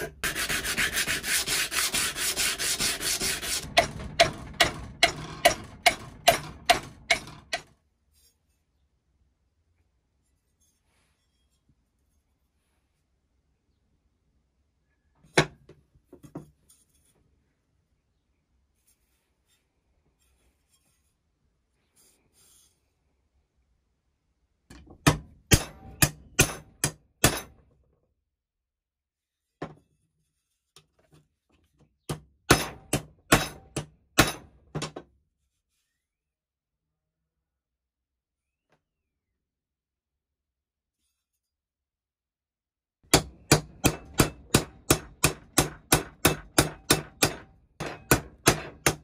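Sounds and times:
hammer striking steel plate: 0:03.1 - 0:07.7, 0:25.1 - 0:27.5, 0:32.5 - 0:34.5, 0:43.1 - 0:49.0.

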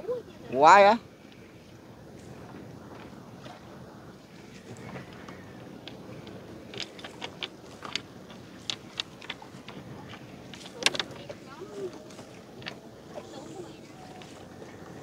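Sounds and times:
fishing net clicks and taps: 0:04.8 - 0:12.8.

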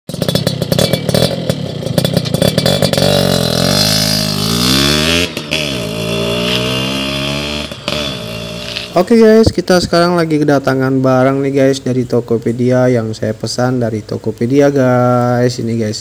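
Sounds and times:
two-stroke motorcycle engine revving: 0:00.1 - 0:09.5.

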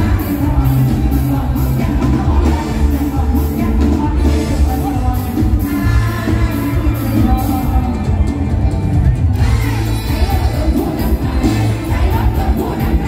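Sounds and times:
heavy bass and steady beat: 0:00.0 - 0:13.0
live band through loudspeakers: 0:00.0 - 0:13.0
person singing: 0:00.0 - 0:13.0.

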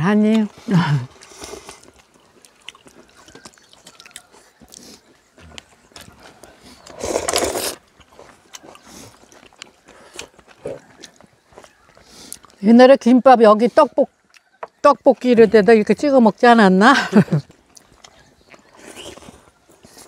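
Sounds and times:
chewing: 0:00.3 - 0:12.6, 0:14.1 - 0:15.6, 0:17.3 - 0:20.0
slurp of noodles: 0:06.8 - 0:07.8.

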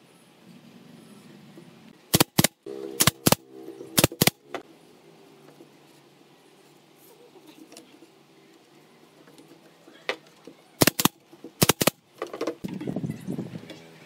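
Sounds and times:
nail gun firing: 0:02.1 - 0:03.4, 0:04.0 - 0:04.4, 0:10.8 - 0:12.0.

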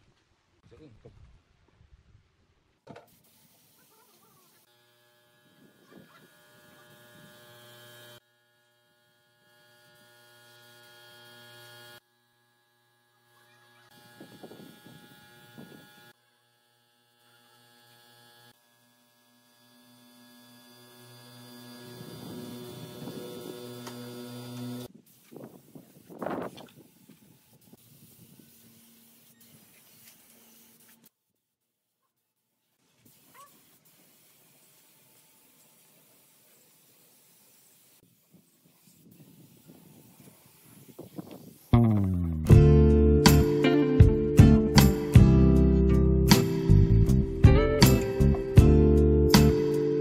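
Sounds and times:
air spray gun hissing: 0:03.1 - 0:04.7, 0:05.3 - 0:08.2, 0:13.4 - 0:16.2, 0:20.2 - 0:31.1, 0:33.0 - 0:41.8.

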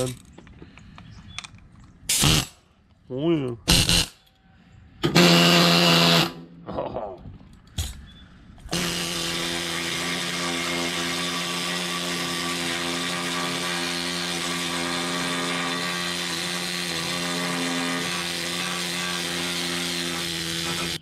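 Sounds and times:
pneumatic needle scaler hammering metal: 0:02.1 - 0:02.6, 0:08.7 - 0:21.0.

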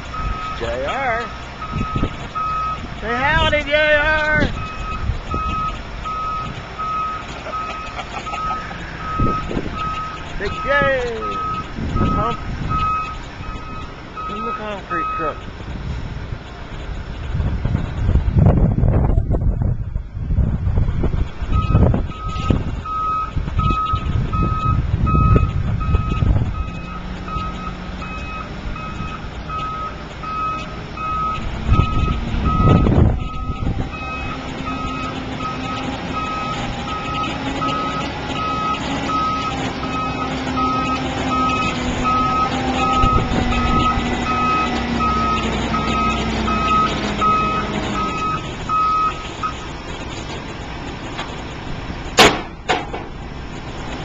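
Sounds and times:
truck engine running: 0:00.0 - 0:54.0
back-up alarm beeping: 0:00.1 - 0:01.0, 0:01.6 - 0:02.8, 0:04.4 - 0:15.4, 0:21.5 - 0:49.6.

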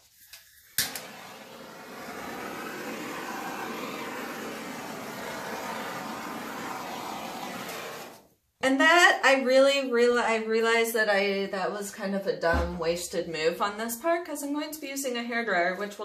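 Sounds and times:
hair dryer switch click: 0:00.8 - 0:01.1
hair dryer blowing: 0:00.8 - 0:08.2.

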